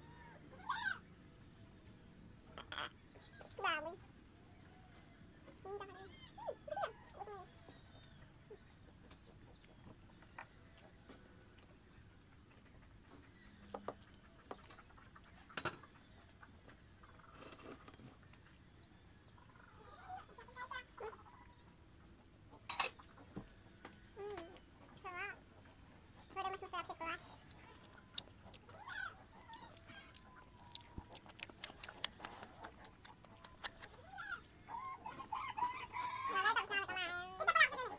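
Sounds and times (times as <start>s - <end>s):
clicks and taps of eating: 27.4s - 34.4s.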